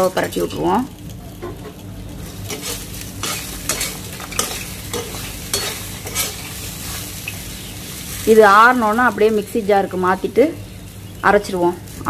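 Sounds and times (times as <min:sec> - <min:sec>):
soft steady sizzle: 0:00.0 - 0:12.0
utensil scraping frying pan: 0:01.4 - 0:09.4.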